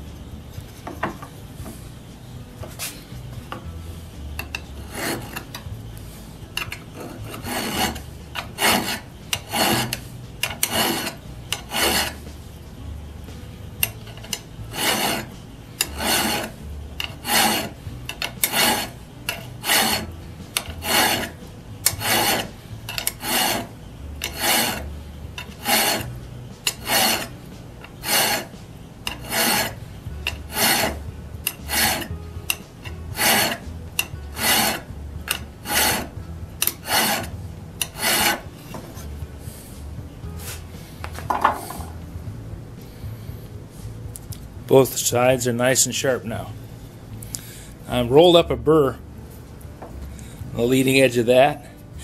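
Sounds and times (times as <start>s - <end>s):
metal file scraping steel: 4.4s - 5.7s, 6.5s - 12.3s, 13.8s - 39.2s.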